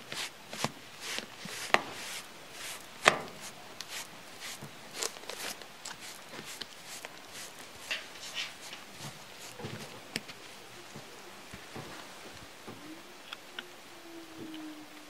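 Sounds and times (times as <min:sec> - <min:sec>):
brush scratching through fur: 0:00.0 - 0:10.0.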